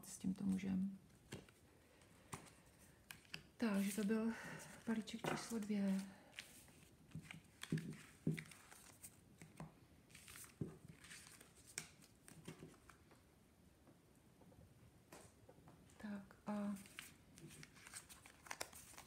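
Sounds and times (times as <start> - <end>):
cards clicking and rustling: 1.2 - 4.1, 4.7 - 13.0, 16.8 - 19.0.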